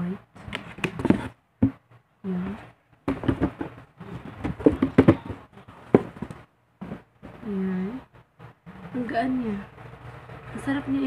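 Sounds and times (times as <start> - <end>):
sneaker and packaging rustling: 3.1 - 7.4.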